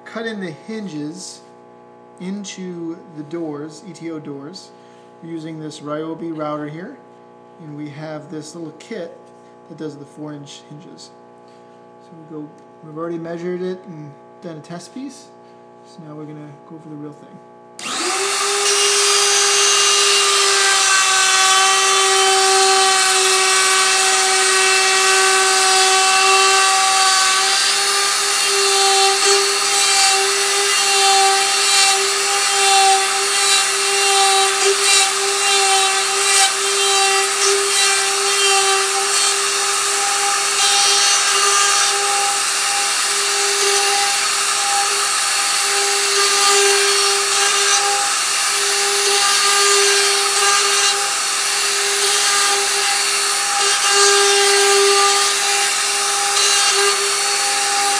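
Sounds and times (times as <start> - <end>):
electric router whining: 17.8 - 57.9.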